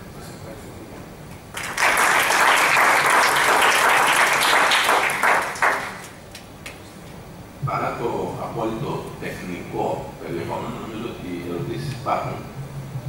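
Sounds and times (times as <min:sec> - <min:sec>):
audience applauding: 0:01.5 - 0:06.2.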